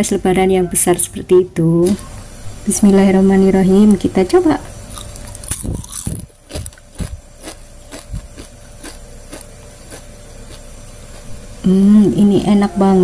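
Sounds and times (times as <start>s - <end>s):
crisp chip crunching: 4.9s - 11.3s.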